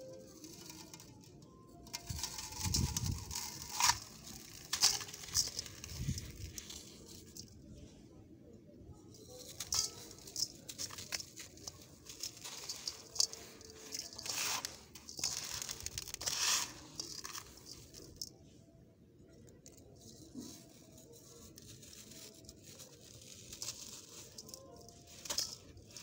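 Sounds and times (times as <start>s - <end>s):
sand crunching under hand: 9.6s - 18.0s.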